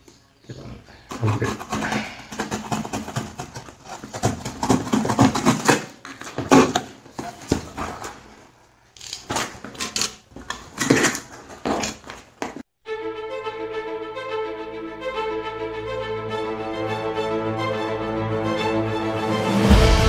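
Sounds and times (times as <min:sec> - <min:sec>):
cardboard box tearing: 0:01.1 - 0:08.3, 0:09.0 - 0:12.1.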